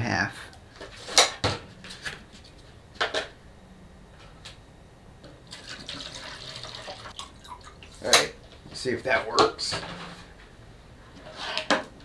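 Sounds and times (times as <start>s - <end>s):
water pouring into plastic jar: 5.5s - 7.8s.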